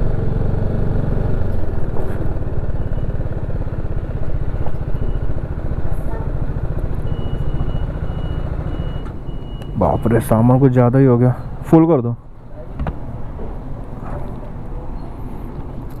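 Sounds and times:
motorcycle engine idling: 0.0 - 9.8.

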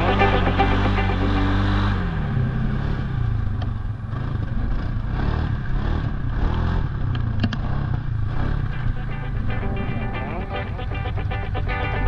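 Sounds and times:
atv engine running: 0.0 - 9.0.

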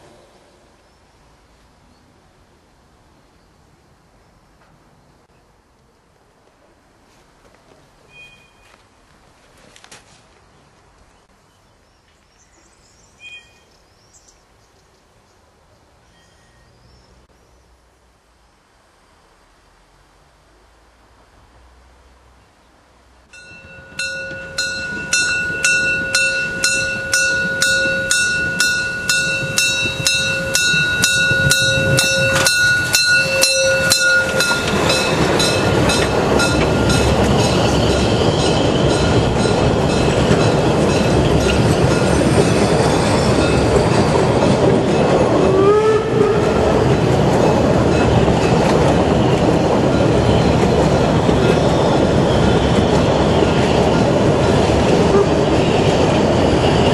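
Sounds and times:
steady high tone: 23.3 - 41.2
steam locomotive exhaust chuffs: 23.4 - 56.9
train wheels clattering on rail: 23.4 - 56.9
wheel squeal: 24.1 - 39.3.

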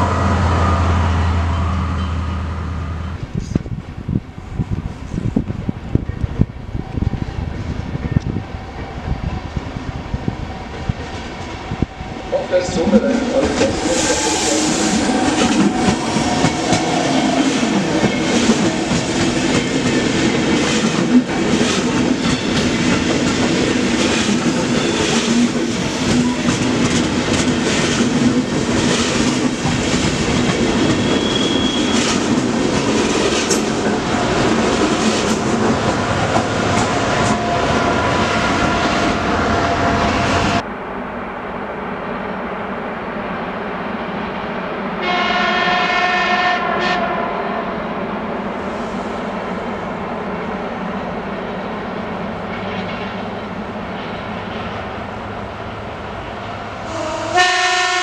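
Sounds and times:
train rolling noise: 0.0 - 58.0
train wheels clicking over joints: 13.0 - 37.8.

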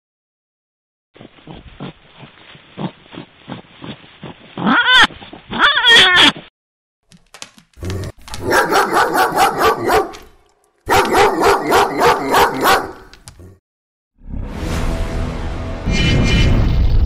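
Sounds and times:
dog barking: 8.4 - 10.3, 10.9 - 13.1.

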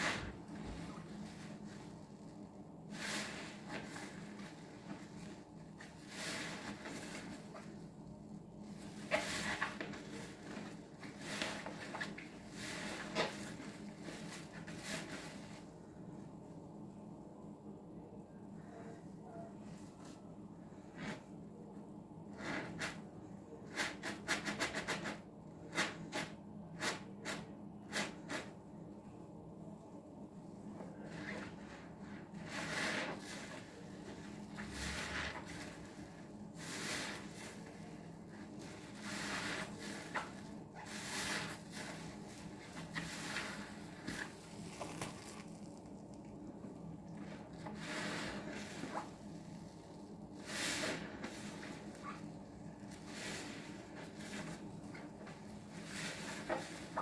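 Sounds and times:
sponge squelching: 30.9 - 46.2, 47.2 - 57.0
soap bubbles crackling: 43.2 - 46.4.

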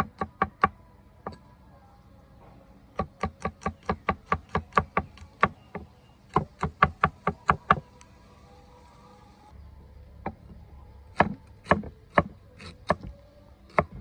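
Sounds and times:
cleaver chopping on wooden block: 11.1 - 13.1.

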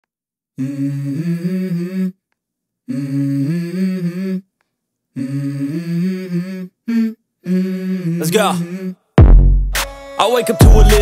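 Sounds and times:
hummed vocal phrases: 0.6 - 2.2, 2.9 - 4.5, 5.1 - 9.1, 10.6 - 11.0.

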